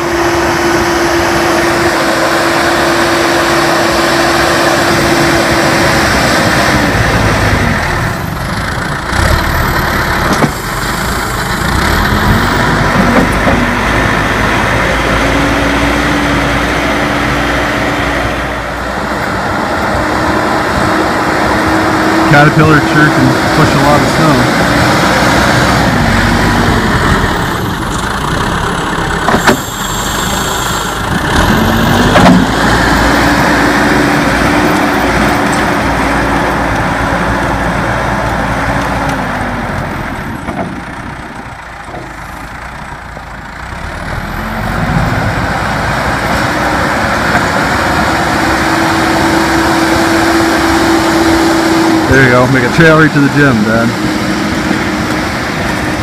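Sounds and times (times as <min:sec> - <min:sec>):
diesel engine working hard: 0:00.0 - 0:56.0
sharp clunks: 0:29.2 - 0:29.7, 0:32.1 - 0:32.5.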